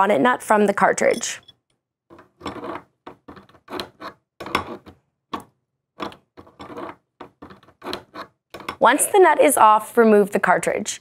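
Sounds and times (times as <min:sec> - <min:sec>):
wrench scraping and clicking on nut: 0:01.4 - 0:08.8.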